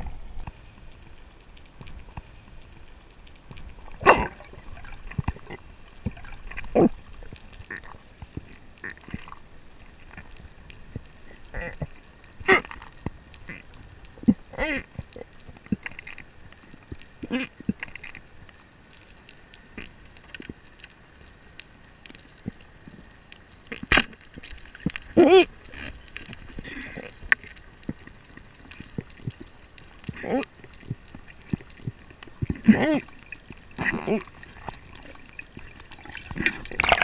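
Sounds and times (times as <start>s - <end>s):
pitched squeaks underwater: 11.4s - 15.0s, 24.5s - 30.5s.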